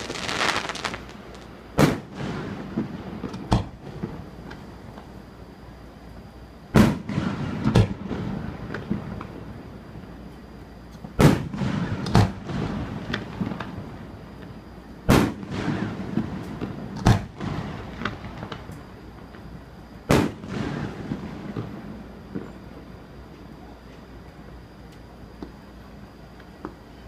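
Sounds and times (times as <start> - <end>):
fireworks booming: 0.0 - 5.1, 6.7 - 10.0, 11.1 - 22.9.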